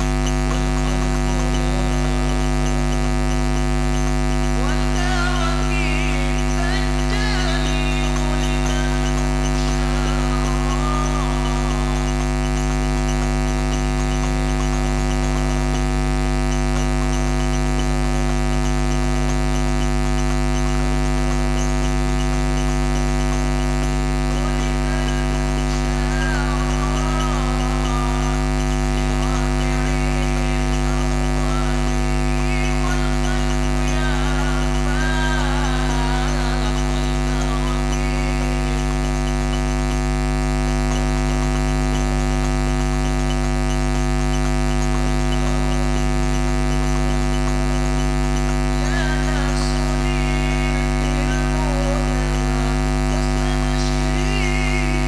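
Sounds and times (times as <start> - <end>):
electrical hum and buzz: 0.0 - 55.0
faint wavering voices: 0.0 - 55.0.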